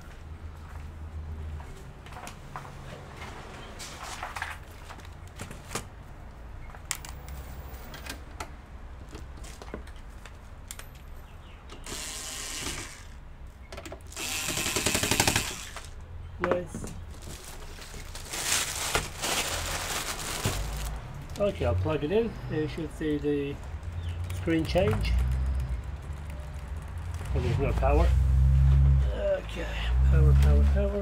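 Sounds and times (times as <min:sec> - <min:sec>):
scraping and rustling on plastic sheeting: 0:17.0 - 0:21.0.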